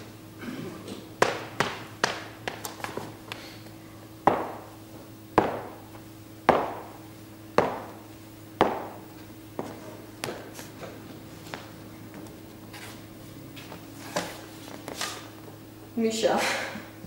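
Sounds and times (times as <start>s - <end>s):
steady low hum: 0.0s - 17.0s
heavy thuds on wooden stage floor: 4.2s - 4.7s, 5.4s - 5.8s, 6.5s - 7.0s, 7.6s - 8.0s, 8.6s - 9.0s.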